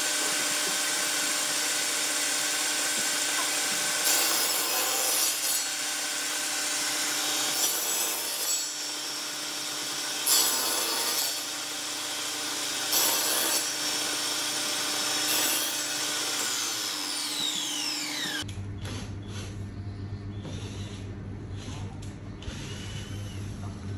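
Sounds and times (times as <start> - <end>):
table saw cutting wood: 0.0 - 18.5
low hum: 18.5 - 23.9.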